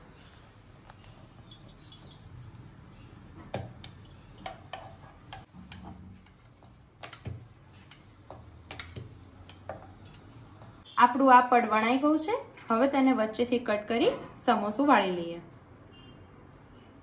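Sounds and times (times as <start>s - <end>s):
rolling pin rolling dough: 0.0s - 10.8s.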